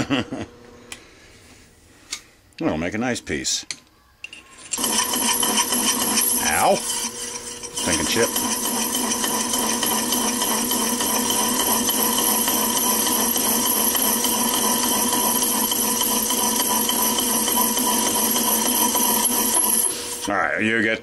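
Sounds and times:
metal lathe machining: 0:04.7 - 0:20.4.

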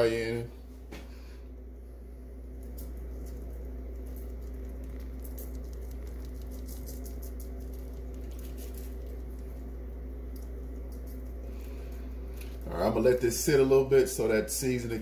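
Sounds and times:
low hum: 0:00.0 - 0:15.0
spice granules pattering: 0:02.5 - 0:14.8.

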